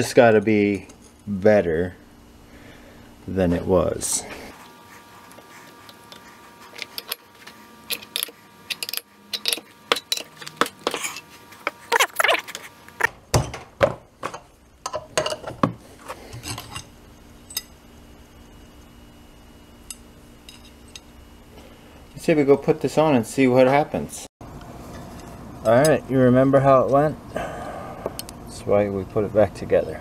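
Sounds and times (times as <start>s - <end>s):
faint steady hum: 0.0s - 30.0s
metal tools clinking and clanking: 7.9s - 11.3s, 16.3s - 16.9s.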